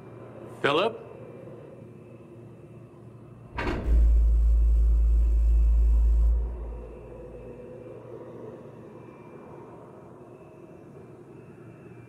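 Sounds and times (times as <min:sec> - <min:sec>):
loud deep machine hum: 0:03.5 - 0:07.7.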